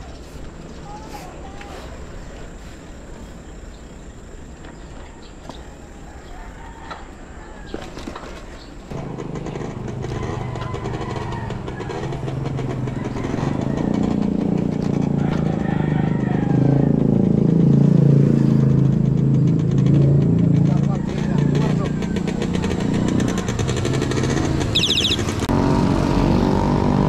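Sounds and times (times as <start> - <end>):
vehicle engine running: 8.9 - 27.0.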